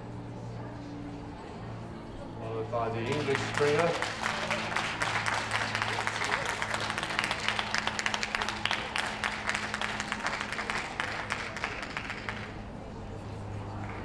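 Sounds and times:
audience applauding: 3.0s - 12.6s.

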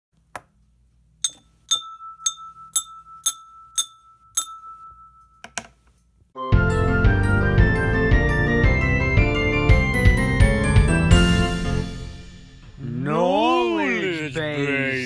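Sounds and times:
brush tapping glass beaker: 1.2s - 5.9s
music: 6.4s - 12.8s.

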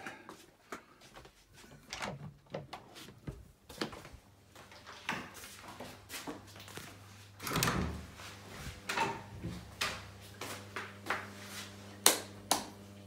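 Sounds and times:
door handle and latch rattling: 1.9s - 2.8s.

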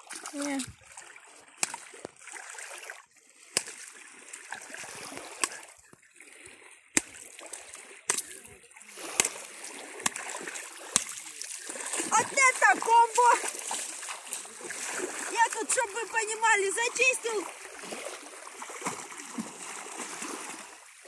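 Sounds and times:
water splashing and sloshing: 0.0s - 21.0s.

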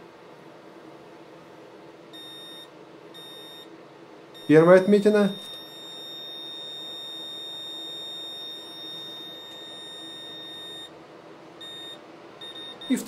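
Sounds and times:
wall scanner beeping: 2.1s - 11.0s, 11.6s - 13.0s.

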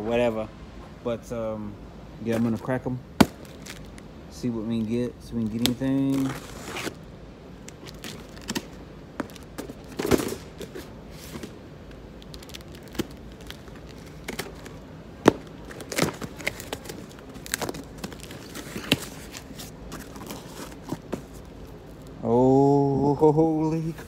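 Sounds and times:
packing tape tearing: 3.2s - 4.0s, 5.5s - 7.0s, 7.6s - 11.3s, 12.2s - 22.0s.

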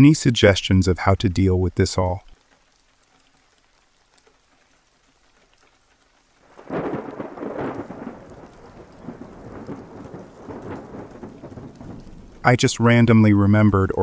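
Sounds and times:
rain: 0.0s - 14.0s
rolling thunder: 6.5s - 14.0s.

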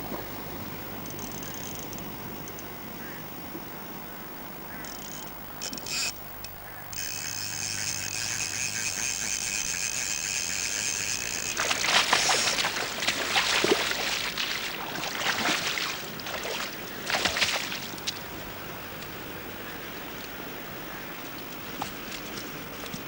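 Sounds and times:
fishing reel ratchet buzzing: 4.8s - 12.9s
fish splashing in water: 7.0s - 18.4s.

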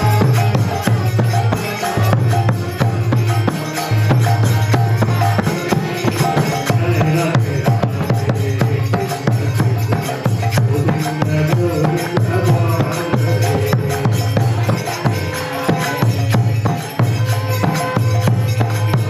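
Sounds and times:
drum strokes: 0.0s - 19.0s
harmonium sustained notes: 0.0s - 19.0s
jingling percussion: 0.0s - 19.0s.

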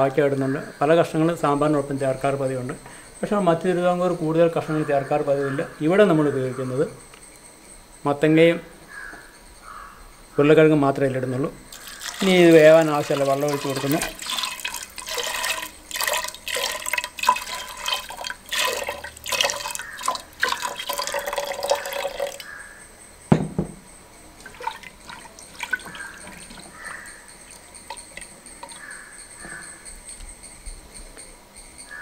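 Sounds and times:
hand mixing pot contents: 11.7s - 22.5s, 24.4s - 28.9s
water pouring into a pot: 11.7s - 22.5s, 24.4s - 28.8s
knock: 23.3s - 23.9s.

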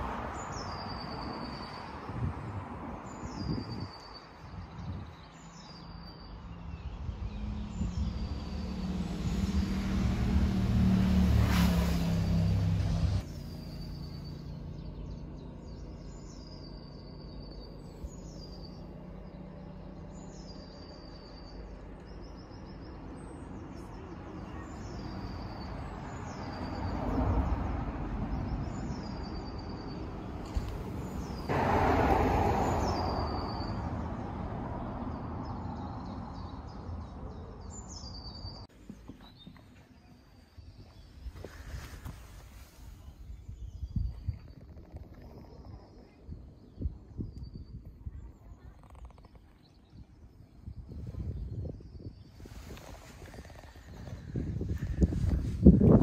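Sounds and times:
steady outdoor rumble: 0.0s - 56.0s
small bird singing: 0.4s - 9.4s, 13.2s - 26.9s, 35.4s - 41.7s
rush of noise: 30.4s - 35.6s.

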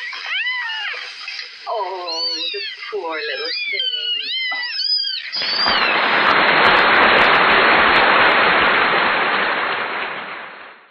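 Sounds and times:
kittens mewing: 0.0s - 6.0s
loud crackling hiss: 0.0s - 10.9s.

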